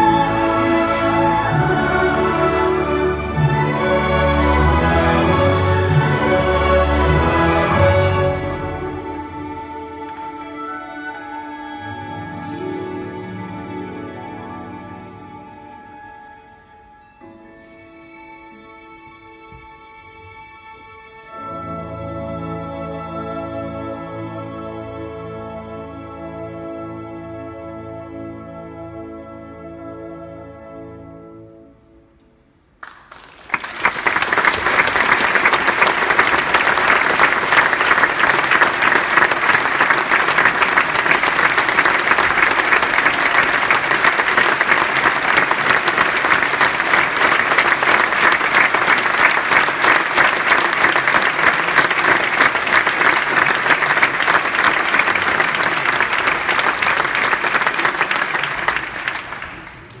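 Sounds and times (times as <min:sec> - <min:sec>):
orchestral notes: 0:00.0 - 0:32.8, 0:33.9 - 1:00.0
audience applauding: 0:32.8 - 1:00.0.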